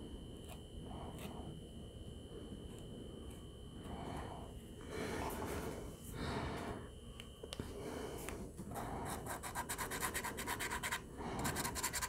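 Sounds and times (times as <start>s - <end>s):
paint pen scratching on paper: 9.0s - 12.0s.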